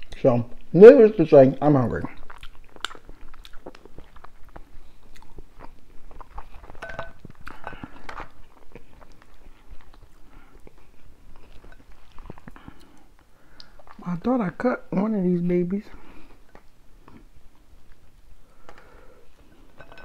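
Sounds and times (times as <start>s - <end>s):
wet chewing: 1.6s - 14.2s.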